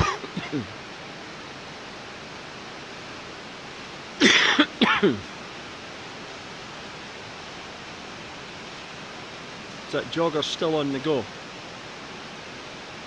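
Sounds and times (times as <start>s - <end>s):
person coughing: 0.0s - 0.7s, 4.2s - 5.2s
heavy rain hissing: 0.0s - 13.0s.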